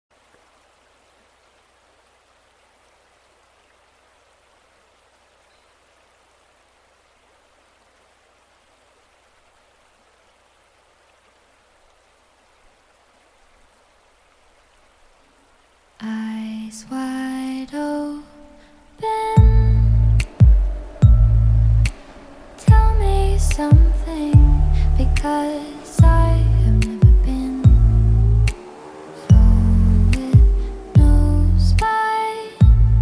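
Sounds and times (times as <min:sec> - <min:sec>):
faint steady hiss: 0:00.1 - 0:33.0
low hum: 0:18.3 - 0:31.9, 0:32.6 - 0:33.0.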